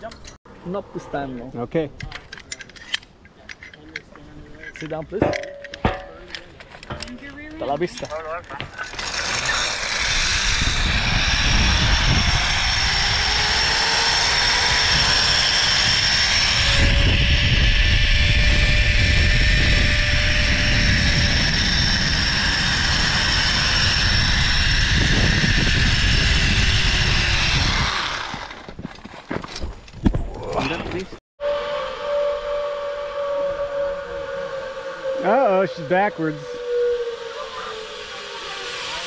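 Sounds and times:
wind buffeting microphone: 6.8s - 29.0s
zip-line pulleys whirring: 6.9s - 28.8s, 31.4s - 39.0s.

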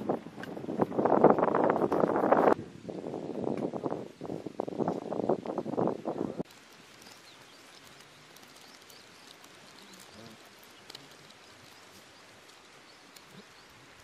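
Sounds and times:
steady hiss: 0.1s - 14.0s
faint high chirps and ticks: 6.4s - 14.0s.

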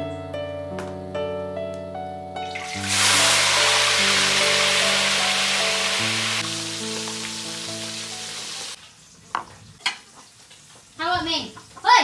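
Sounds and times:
fish sizzling in hot oil: 2.4s - 12.0s.

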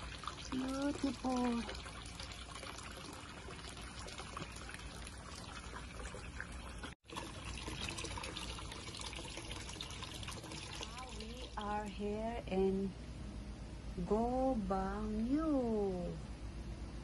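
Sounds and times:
water pouring into a bath: 0.0s - 11.7s.

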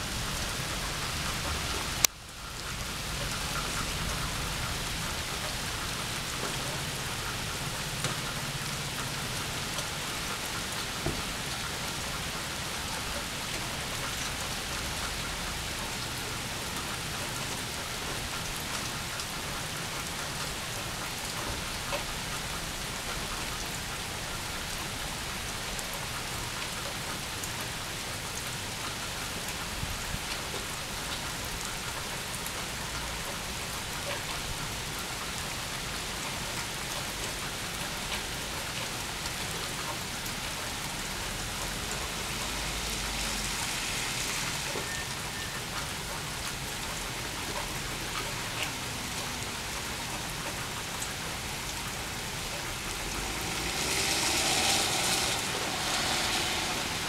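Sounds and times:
rain falling: 0.0s - 57.0s
raindrop ticks: 0.4s - 56.8s.

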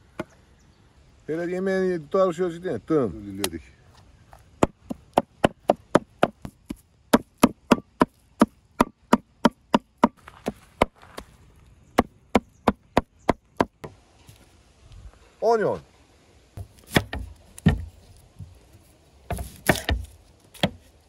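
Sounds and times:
cleaver chopping on wooden block: 4.6s - 10.2s, 12.0s - 13.9s, 16.6s - 17.9s, 19.3s - 20.8s.

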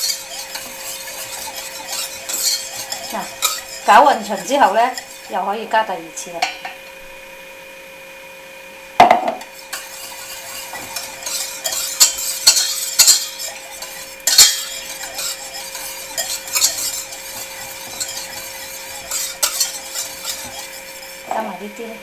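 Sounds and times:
whisk scraping metal bowl: 0.0s - 6.7s, 9.4s - 21.7s
sharp knock: 9.0s - 9.4s.

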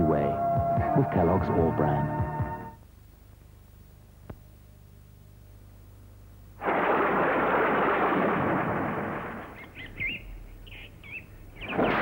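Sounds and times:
thunderclap rumbling: 6.6s - 9.9s
high bird chirps: 9.6s - 12.0s.

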